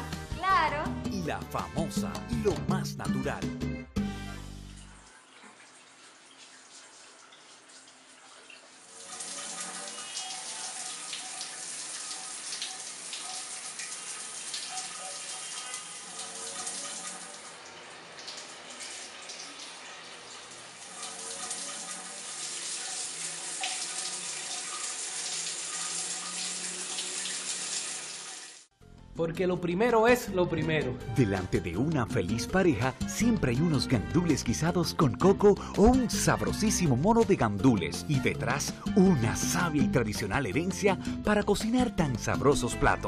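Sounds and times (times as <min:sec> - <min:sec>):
shower water spraying: 0:04.6 - 0:28.7.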